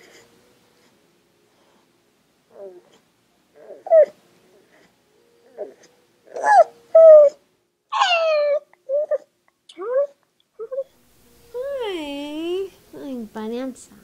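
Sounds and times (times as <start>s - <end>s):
dog whining and crying: 2.5s - 3.0s, 3.6s - 11.0s.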